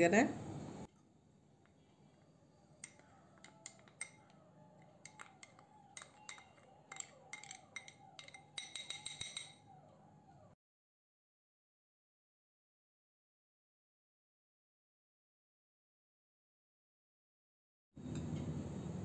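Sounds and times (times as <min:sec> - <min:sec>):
spoon clinking on glass bowl: 0:01.6 - 0:09.7.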